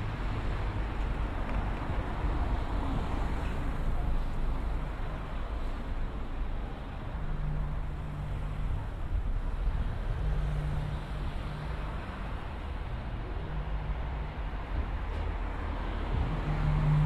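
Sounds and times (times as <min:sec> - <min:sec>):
road traffic noise: 0:00.0 - 0:17.0
low engine hum: 0:07.3 - 0:17.0.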